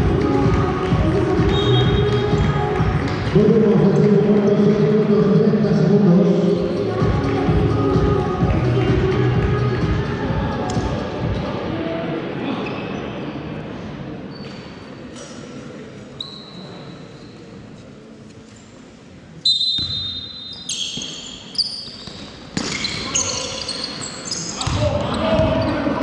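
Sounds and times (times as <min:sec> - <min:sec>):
players' voices: 0:00.0 - 0:12.9, 0:22.9 - 0:26.0
short shoe squeaks: 0:14.3 - 0:14.9, 0:16.2 - 0:17.4, 0:19.4 - 0:24.8
sneakers on court: 0:24.6 - 0:26.0.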